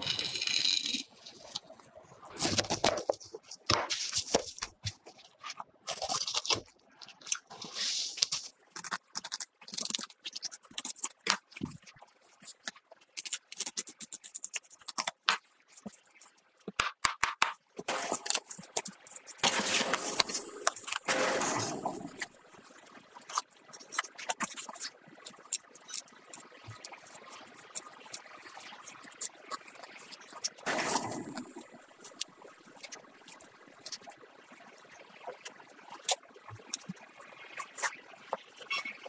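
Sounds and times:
knife scraping fish bones: 0:08.1 - 0:11.8, 0:12.5 - 0:16.2, 0:17.8 - 0:22.3.

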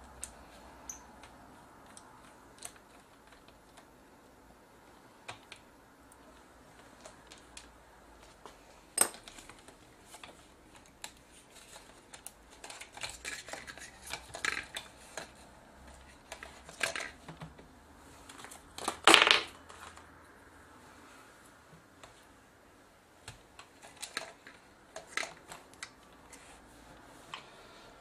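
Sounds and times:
plastic parts clicking and rattling: 0:00.0 - 0:03.9, 0:05.2 - 0:20.1, 0:23.2 - 0:26.5.

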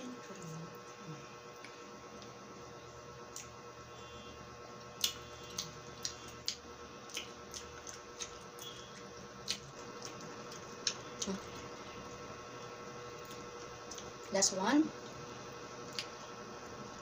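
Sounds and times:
faint steady hum: 0:00.0 - 0:17.0
wet mouth chewing sounds: 0:05.0 - 0:11.8.

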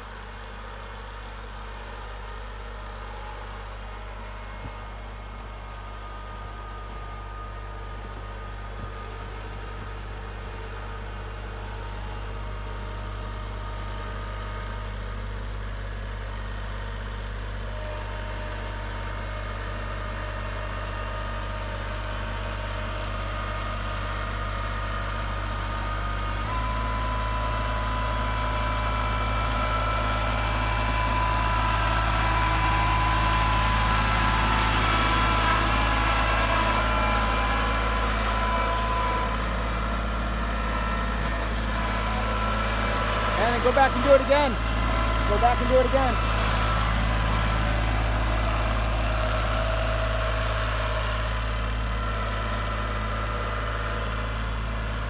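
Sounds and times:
tractor diesel engine under load: 0:00.0 - 0:55.0
steady whine: 0:25.8 - 0:55.0.

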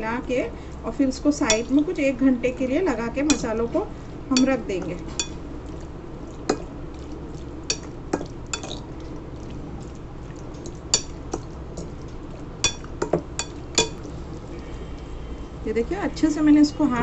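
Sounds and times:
fork stirring meat in marinade: 0:00.9 - 0:02.0, 0:04.3 - 0:15.7
fork clinking against glass bowl: 0:05.2 - 0:05.4, 0:07.7 - 0:08.8, 0:10.9 - 0:11.5, 0:12.6 - 0:14.1.

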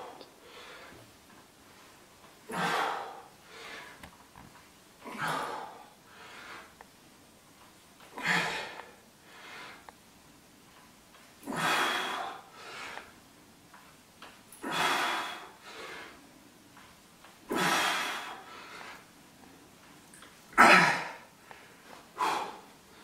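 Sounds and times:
man breathing hard: 0:02.5 - 0:04.0, 0:05.1 - 0:06.8, 0:08.1 - 0:09.9, 0:11.4 - 0:13.1, 0:14.6 - 0:16.3, 0:17.5 - 0:19.1, 0:20.7 - 0:23.0.

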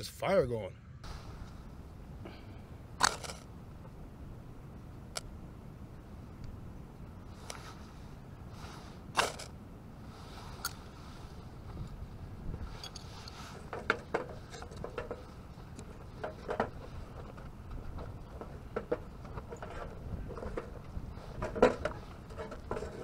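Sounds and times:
ferrocerium rod scraping: 0:03.0 - 0:03.5, 0:07.3 - 0:09.5, 0:12.6 - 0:17.3, 0:19.2 - 0:23.0.

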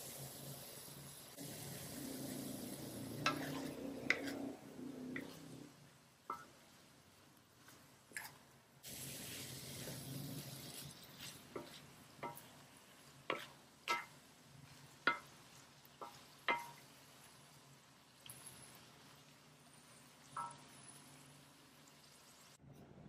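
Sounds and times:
food sizzling while stirred: 0:00.0 - 0:22.6
spatula tapping metal pan: 0:06.3 - 0:06.6, 0:11.5 - 0:12.6, 0:13.2 - 0:14.3, 0:15.0 - 0:16.9, 0:20.2 - 0:21.1.

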